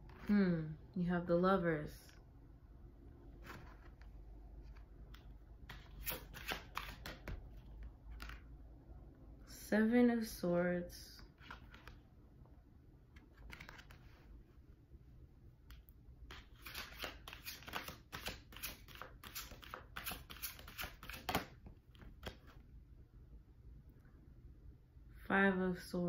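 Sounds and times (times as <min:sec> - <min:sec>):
cards being shuffled: 0:03.4 - 0:08.4, 0:11.4 - 0:12.0, 0:13.2 - 0:14.4, 0:15.6 - 0:22.6.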